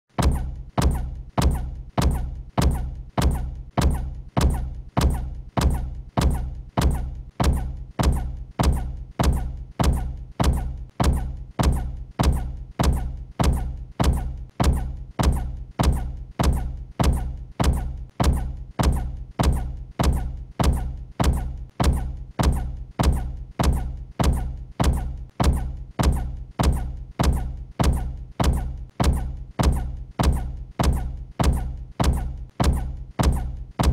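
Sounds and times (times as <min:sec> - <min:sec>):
deep thud with low boom: 0:00.2 - 0:33.9.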